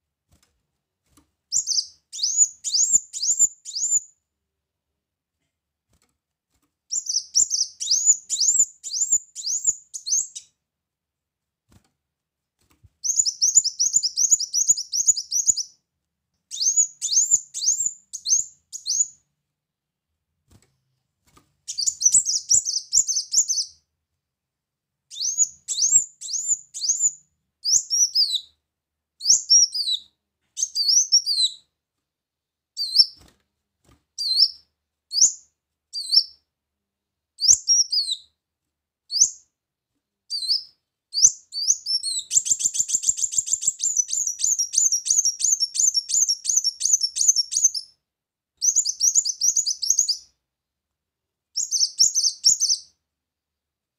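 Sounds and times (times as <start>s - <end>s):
bird high sharp chirps: 1.5s - 4.1s, 6.9s - 10.5s, 13.0s - 15.8s, 16.5s - 19.2s, 21.7s - 23.8s, 25.1s - 28.5s, 29.2s - 31.7s, 32.8s - 33.2s, 34.2s - 35.4s, 36.0s - 36.4s, 37.4s - 38.3s, 40.3s - 48.0s, 48.6s - 50.4s, 51.6s - 52.9s.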